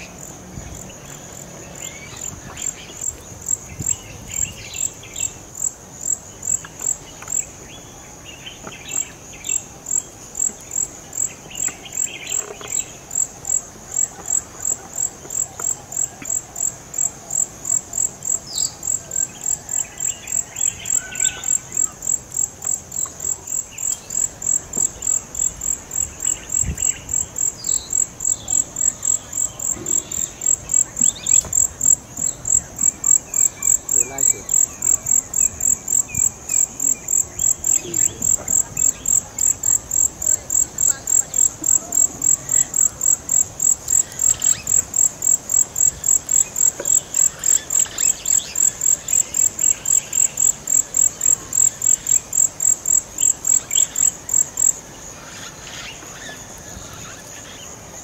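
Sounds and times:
insect high-pitched pulsing call: 0:17.4 - 0:57.7.

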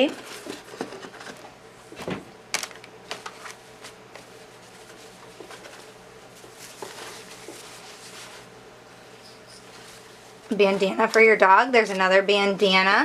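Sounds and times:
cloth rustling: 0:03.4 - 0:11.1.

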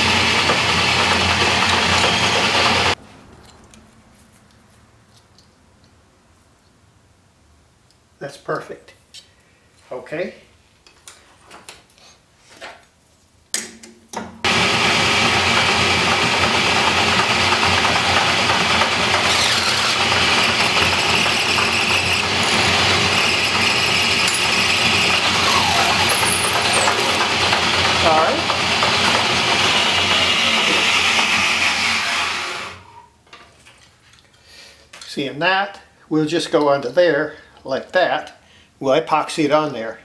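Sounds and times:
electric power tool running: 0:00.0 - 0:03.0, 0:14.5 - 0:32.8.

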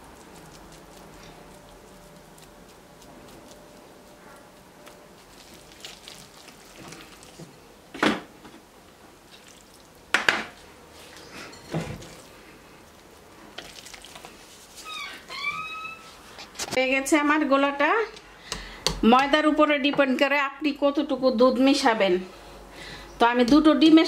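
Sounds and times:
whisk stirring thick batter: 0:00.0 - 0:07.6.

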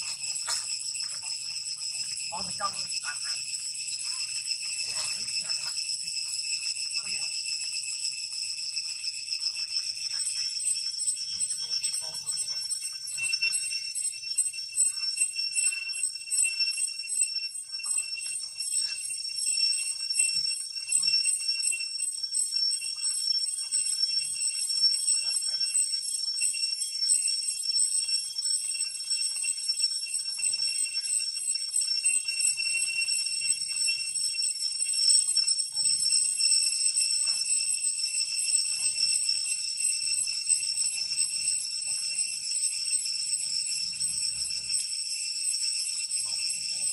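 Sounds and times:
cicadas chorus: 0:00.0 - 0:16.5, 0:22.3 - 0:28.4, 0:37.2 - 0:44.9.

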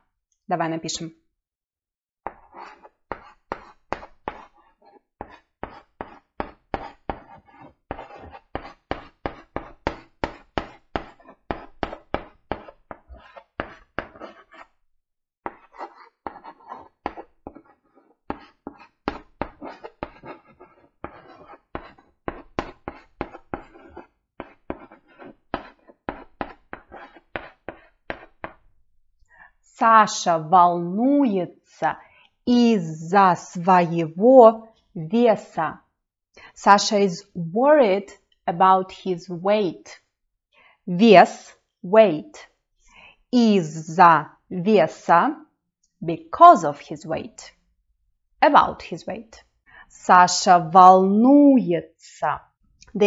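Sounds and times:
chalk writing on blackboard: 0:02.2 - 0:14.8, 0:15.4 - 0:28.7.

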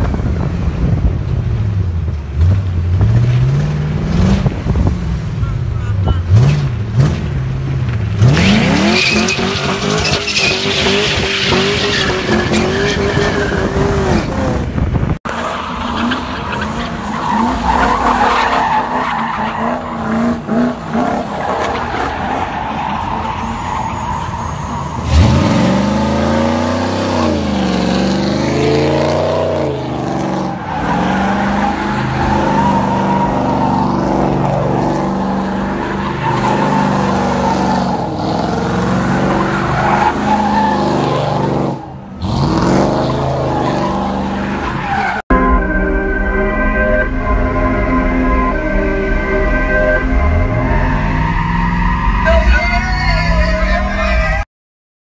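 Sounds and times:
car engine revving: 0:02.2 - 0:23.6, 0:24.4 - 0:52.4
spinning tyres squealing: 0:08.2 - 0:14.5, 0:15.3 - 0:45.2, 0:48.5 - 0:54.4.

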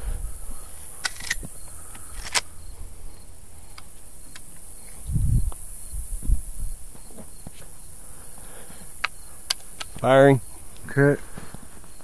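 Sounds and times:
crickets buzzing: 0:00.0 - 0:12.0
dull low thumps: 0:05.0 - 0:07.1
sharp clicks: 0:09.0 - 0:10.1.

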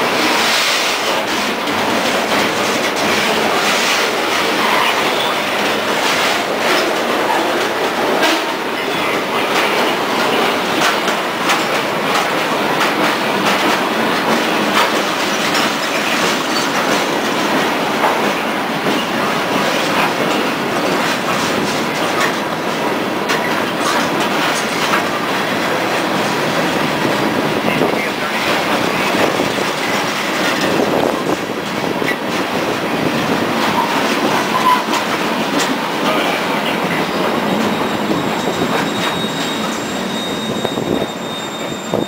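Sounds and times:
wheels clattering over rail joints: 0:00.0 - 0:27.4, 0:28.0 - 0:42.0
steel wheels rolling on rail: 0:00.0 - 0:42.0.

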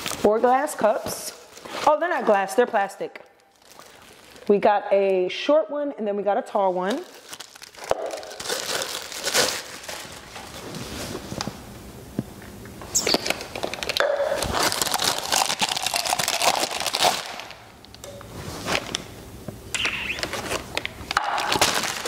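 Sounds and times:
packaging crinkling and rustling: 0:00.0 - 0:04.5, 0:06.9 - 0:11.6, 0:13.0 - 0:19.1, 0:19.8 - 0:22.0.

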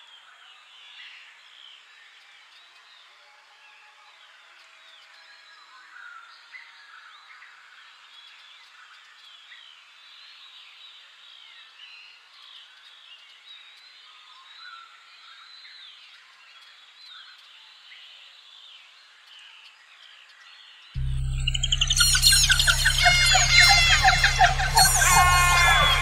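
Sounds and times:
chirps and whistles of birds or frogs: 0:04.1 - 0:26.0
loud music: 0:21.0 - 0:26.0.

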